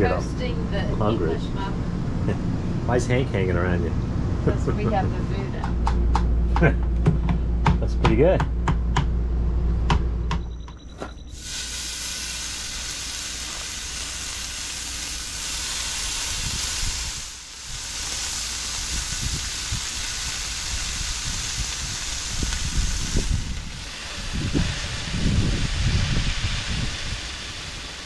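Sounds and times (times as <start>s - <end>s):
bacon sizzling on a griddle: 11.4s - 28.0s.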